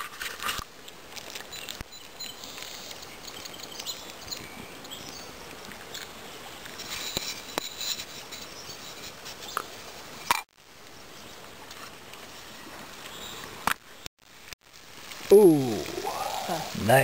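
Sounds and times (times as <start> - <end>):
outdoor hiss: 9.2 - 17.0
wood fire crackling: 10.6 - 17.0.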